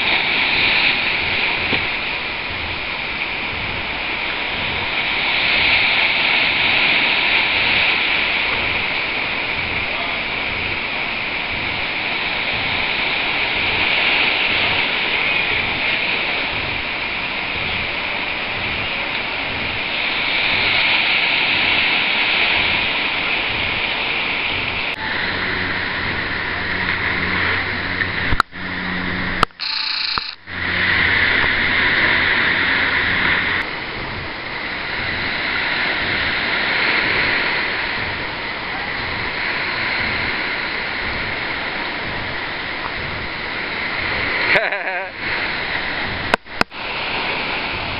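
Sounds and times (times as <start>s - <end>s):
ocean surf breaking: 0.0s - 47.9s
low hum: 24.5s - 39.3s.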